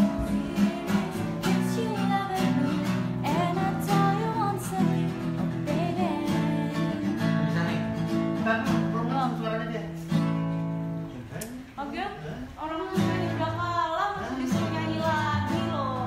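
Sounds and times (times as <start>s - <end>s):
woman singing: 0.0s - 7.6s, 12.6s - 16.0s
acoustic guitar strumming: 0.0s - 11.2s, 12.7s - 16.0s.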